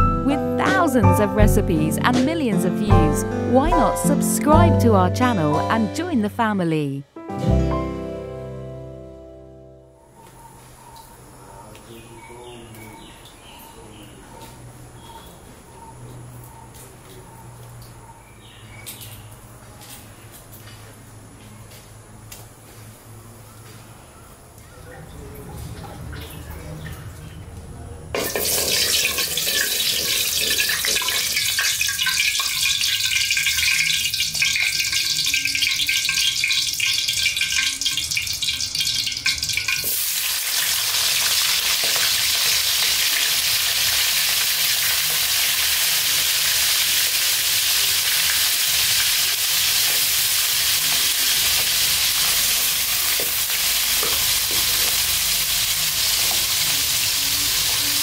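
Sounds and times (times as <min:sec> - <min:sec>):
fish deep-frying sizzle: 0:28.2 - 0:58.0
oil crackling and hissing: 0:39.8 - 0:58.0.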